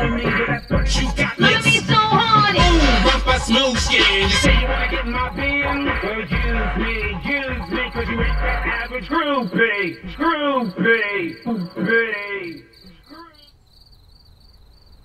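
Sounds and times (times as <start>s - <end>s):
soundtrack music: 0.0s - 9.0s
crickets chirping: 0.0s - 15.0s.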